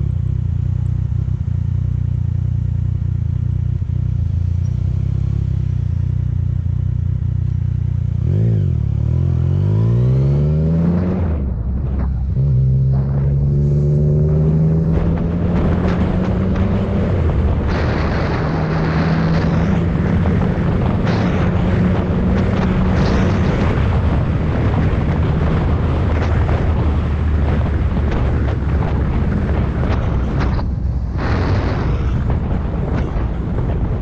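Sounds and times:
motorcycle engine running: 0.0s - 34.0s
wind rushing over microphone: 8.4s - 34.0s.

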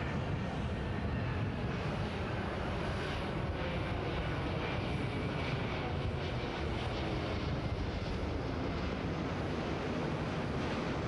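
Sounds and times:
jet airliner flying past: 0.0s - 11.0s.

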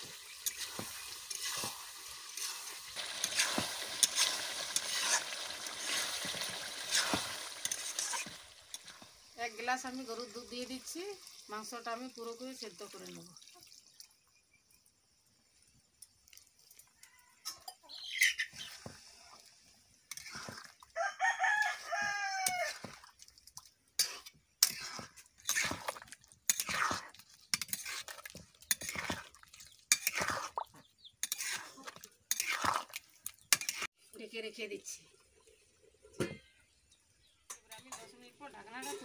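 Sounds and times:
metal spatula scraping a wok: 0.0s - 9.1s, 20.1s - 20.8s, 24.0s - 29.3s, 29.9s - 33.9s
rooster crowing: 21.0s - 22.9s.

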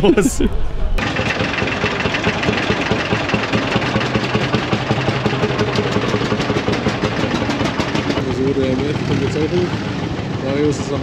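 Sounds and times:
tractor engine running: 1.0s - 8.8s.

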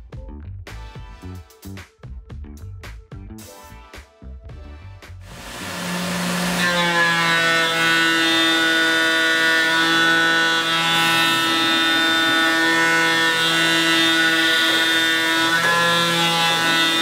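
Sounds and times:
milling machine whine: 5.3s - 17.0s.

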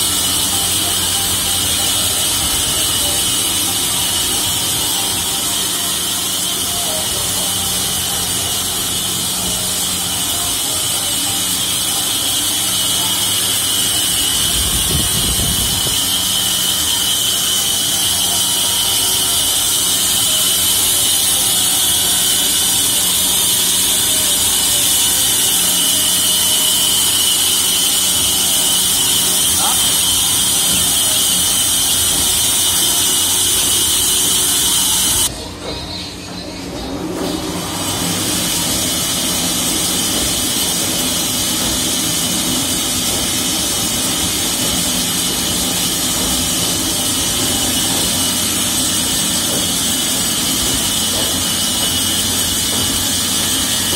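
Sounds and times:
band saw running: 0.0s - 35.9s, 36.8s - 53.9s.

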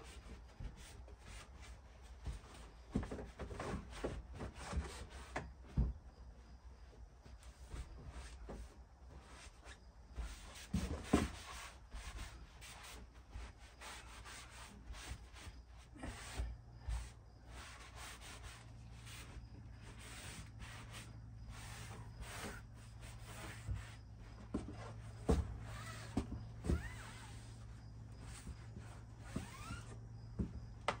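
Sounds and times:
cloth scrubbing a surface: 10.2s - 24.1s.

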